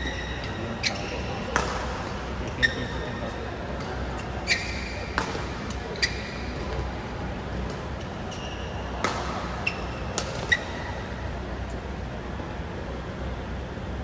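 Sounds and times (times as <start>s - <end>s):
rackets striking shuttlecock: 0.0s - 3.0s, 3.7s - 6.9s, 7.5s - 11.2s.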